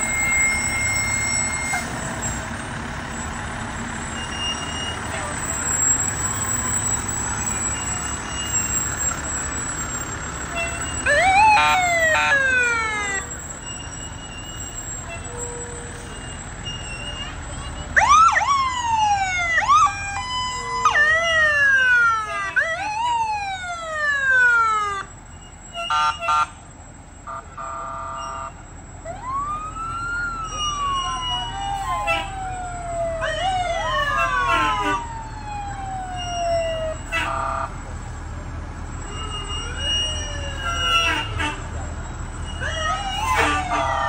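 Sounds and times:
emergency vehicle sirens: 0.0s - 44.0s
short steady siren blasts: 10.5s - 13.8s, 27.2s - 37.8s.

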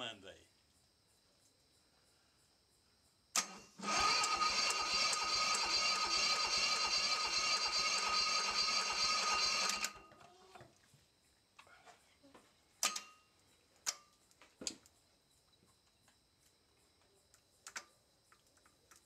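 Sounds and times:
air-cooled engine running: 3.5s - 10.0s
metallic clicks and knocks: 12.8s - 13.2s.

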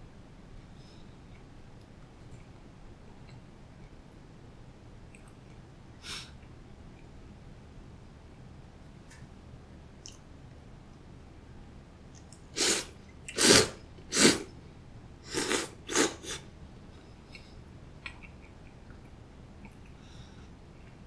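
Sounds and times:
person slurping noodles: 12.6s - 14.5s, 15.3s - 16.4s.

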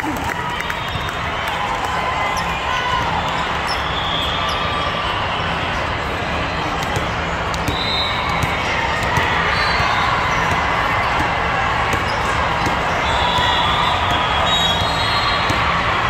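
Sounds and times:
crowd chatter: 0.0s - 16.0s
volleyballs smacking and bouncing: 6.6s - 16.0s.

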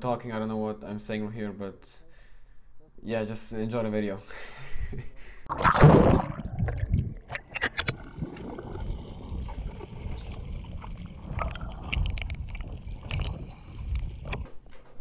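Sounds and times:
clicks and bubble pops: 5.5s - 14.5s
rush of bubbles underwater: 5.5s - 14.5s
low rumble of water: 5.6s - 14.5s.

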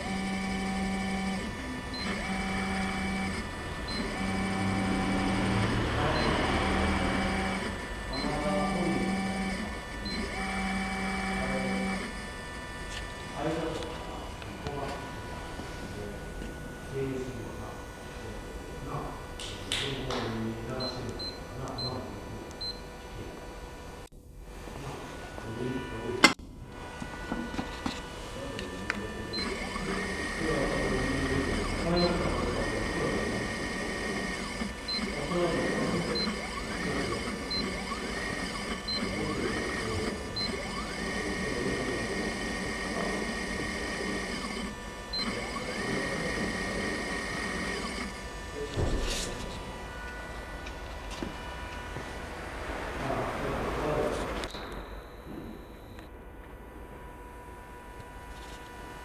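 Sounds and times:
roll feeder drive whine: 0.0s - 59.0s
steady low hum: 0.0s - 59.0s
short high control panel beeps: 54.5s - 56.1s.

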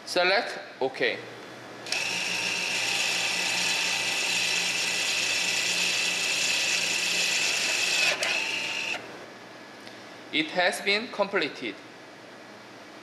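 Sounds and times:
parking brake motor whining: 1.8s - 9.1s.

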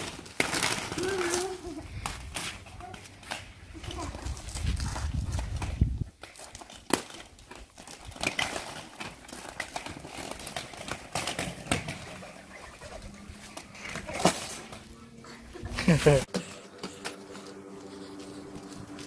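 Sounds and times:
skate wheels knocking and scraping: 0.0s - 15.0s
inline skates rolling on paving: 0.0s - 19.0s.

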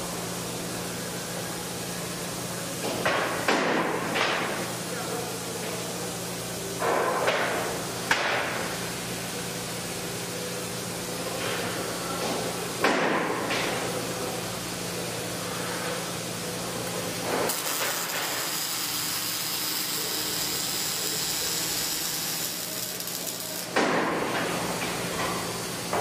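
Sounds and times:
steady machine hum: 0.0s - 26.0s
welding arc crackling: 16.8s - 24.5s.

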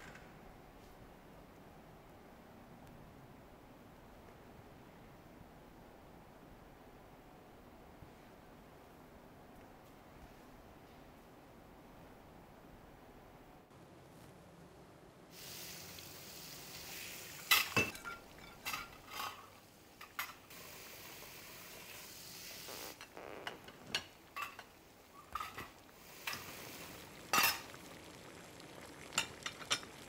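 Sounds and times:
food sizzling in a pan: 15.3s - 30.0s
metal utensils clinking and scraping: 17.5s - 20.4s, 23.9s - 25.7s.

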